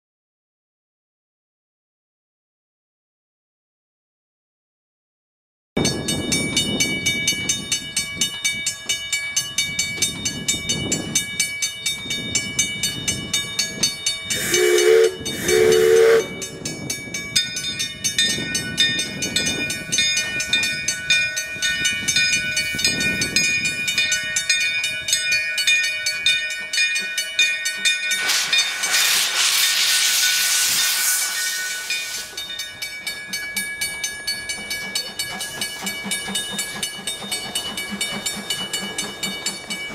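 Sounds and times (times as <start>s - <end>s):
crossing bell ringing: 5.8s - 39.9s
steam whistle blasts: 14.4s - 16.6s
steam hiss: 28.1s - 32.7s
steam engine exhaust chuffs: 28.2s - 32.5s.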